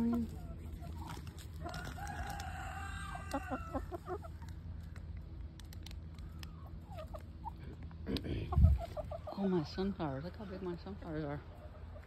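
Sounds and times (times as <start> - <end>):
chicken clucking: 0.0 - 4.6, 6.2 - 12.0
chicken calling: 0.3 - 4.4.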